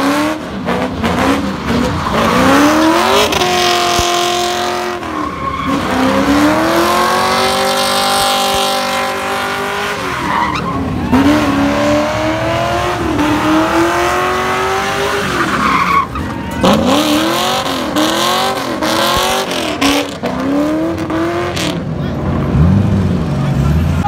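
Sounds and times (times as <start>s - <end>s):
car engine revving high: 0.0s - 16.0s, 16.6s - 24.0s
tyres squealing on asphalt: 0.6s - 12.5s, 14.2s - 21.9s.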